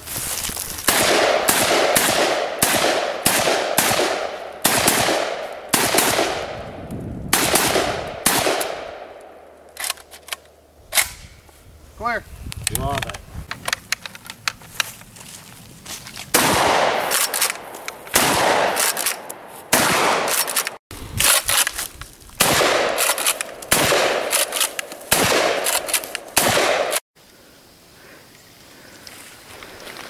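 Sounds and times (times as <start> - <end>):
shotgun blasts with echo: 0.9 - 6.7, 7.3 - 9.4, 16.3 - 20.8, 22.4 - 27.0.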